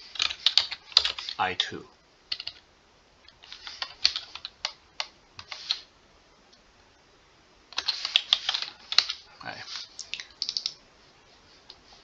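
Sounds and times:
typing on computer keyboard: 0.1s - 1.4s, 2.3s - 2.6s, 3.4s - 5.9s, 7.8s - 9.2s, 10.2s - 10.8s.

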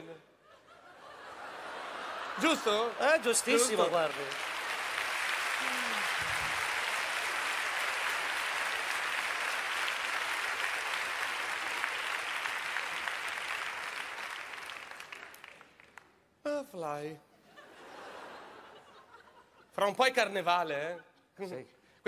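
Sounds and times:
audience applauding: 1.4s - 16.2s.

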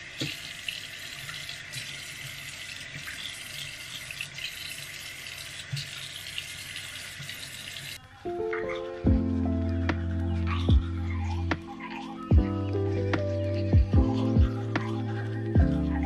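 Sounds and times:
faucet running into sink: 0.0s - 8.0s.

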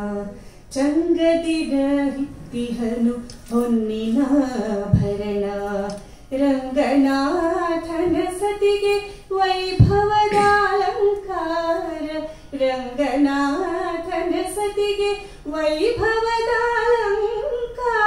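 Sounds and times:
low thumps: 4.7s - 5.3s, 9.6s - 10.8s.

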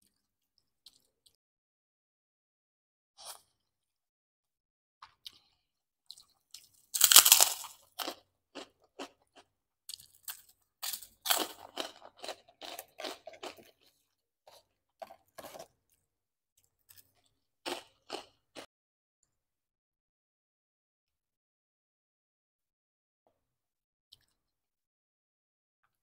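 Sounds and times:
crackers crunching: 6.1s - 16.0s, 16.6s - 18.4s.

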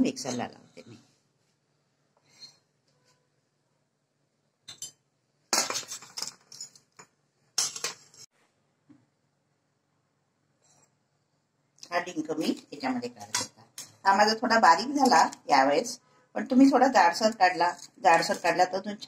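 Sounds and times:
metal clinking and clattering: 4.7s - 8.3s.

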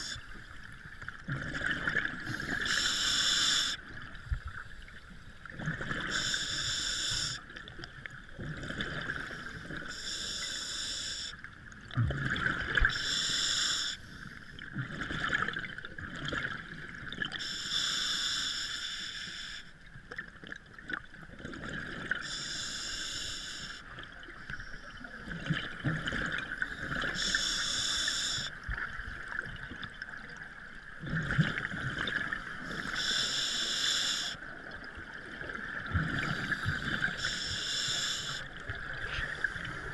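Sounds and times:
underwater background hiss: 0.0s - 1.0s, 2.0s - 7.9s, 9.0s - 11.5s, 12.6s - 14.6s, 17.2s - 20.2s, 22.1s - 29.2s, 30.6s - 39.9s
regulator breathing hiss: 2.3s - 3.9s, 6.1s - 7.4s, 9.9s - 11.4s, 12.9s - 14.3s, 17.4s - 19.7s, 22.2s - 23.9s, 27.1s - 28.6s, 32.7s - 34.4s, 36.5s - 39.8s.

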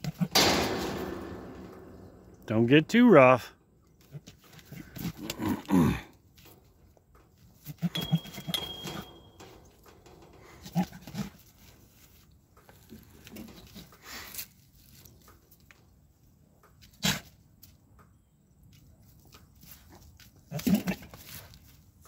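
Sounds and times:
goat grunting: 4.0s - 6.2s, 10.5s - 11.4s, 20.5s - 21.3s.

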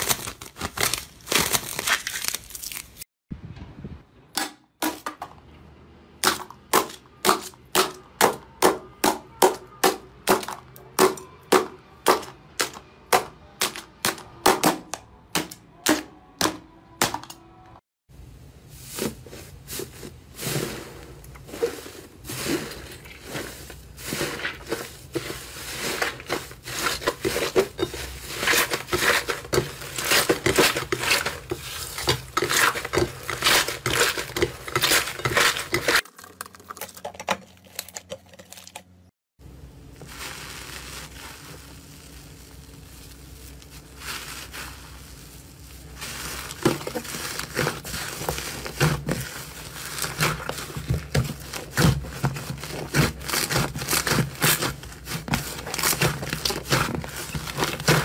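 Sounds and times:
slime crackling and popping: 40.0s - 58.0s.

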